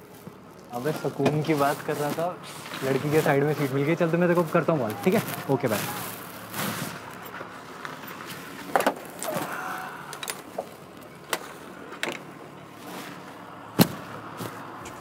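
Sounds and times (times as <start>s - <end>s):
rustling: 0.0s - 9.5s, 12.7s - 15.0s.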